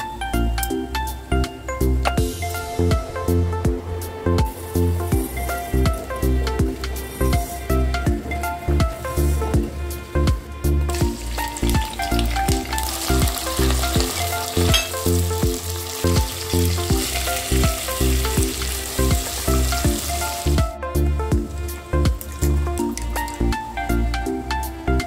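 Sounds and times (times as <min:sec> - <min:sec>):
background music with beat: 0:00.0 - 0:25.0
onions sizzling in hot oil: 0:10.9 - 0:20.6.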